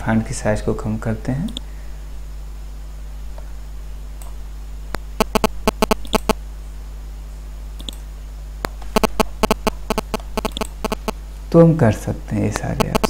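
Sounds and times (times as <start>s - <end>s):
low electrical hum: 0.0s - 13.0s
computer mouse clicking: 4.2s - 6.4s, 7.8s - 11.2s, 12.8s - 13.0s.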